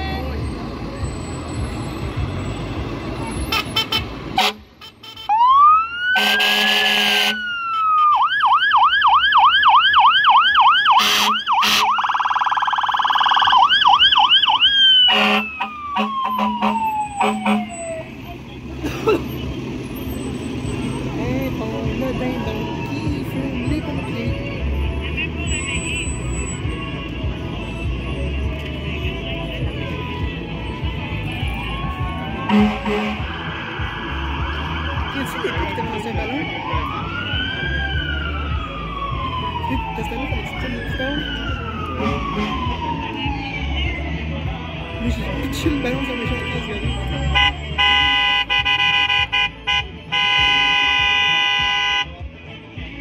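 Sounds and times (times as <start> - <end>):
emergency vehicle siren: 0.0 - 52.3
short horn blasts: 3.4 - 5.4, 6.2 - 8.2, 11.0 - 11.9, 15.1 - 17.7, 32.5 - 33.3, 47.3 - 52.1.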